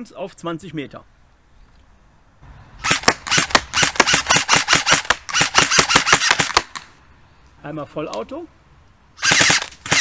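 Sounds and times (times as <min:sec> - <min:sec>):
airsoft rifle shots clacking: 0:02.8 - 0:06.9, 0:09.2 - 0:10.0.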